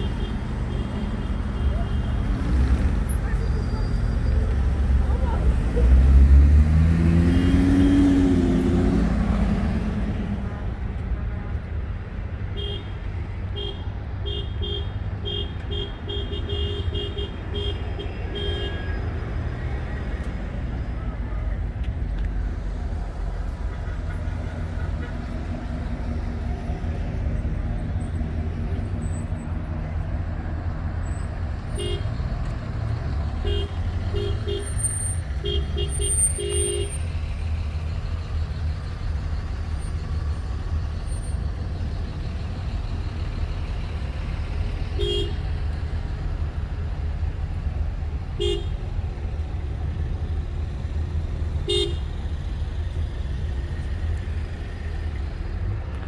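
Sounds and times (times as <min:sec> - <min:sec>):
traffic rumble: 0:00.0 - 0:56.0
car horns honking: 0:12.5 - 0:19.0, 0:31.6 - 0:32.3, 0:33.4 - 0:37.1, 0:44.9 - 0:45.5, 0:48.4 - 0:48.8, 0:51.6 - 0:52.2.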